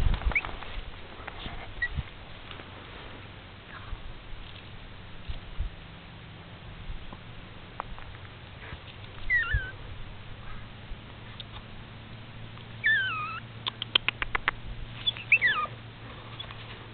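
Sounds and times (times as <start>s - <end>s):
puppy whining: 9.2s - 9.8s, 12.8s - 13.5s, 15.0s - 15.8s
sharp clicks: 13.6s - 14.6s.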